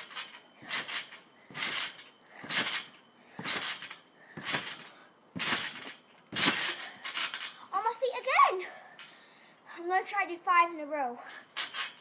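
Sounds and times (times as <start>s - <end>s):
trampoline bouncing: 0.0s - 8.4s, 11.3s - 12.0s.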